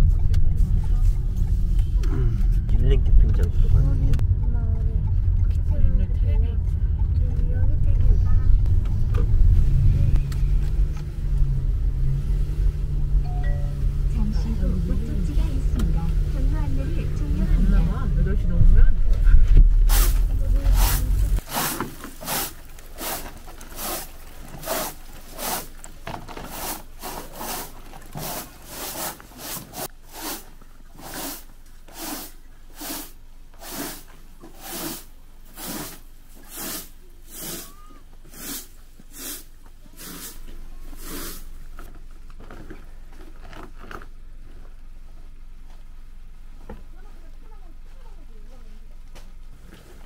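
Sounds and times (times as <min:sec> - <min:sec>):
broom sweeping snow off wood: 0:19.8 - 0:25.8, 0:26.4 - 0:41.6.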